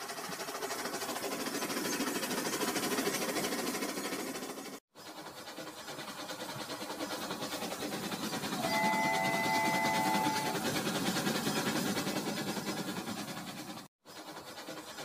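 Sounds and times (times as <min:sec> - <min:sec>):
toy train whirring rattle: 0:00.0 - 0:15.0
electronic horn chord: 0:08.6 - 0:10.6.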